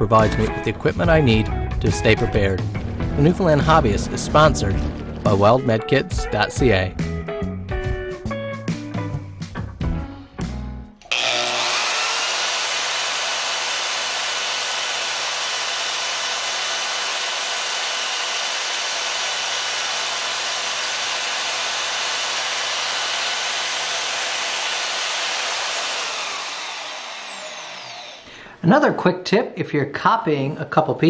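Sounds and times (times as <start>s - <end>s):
bandsaw cutting: 11.0s - 28.5s.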